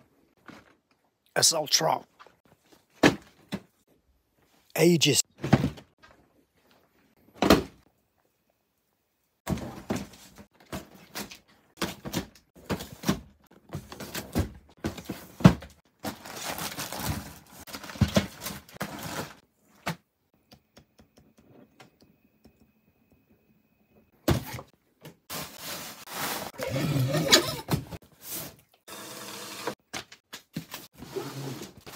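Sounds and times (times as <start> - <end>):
plastic packaging rustling: 16.0 - 19.4.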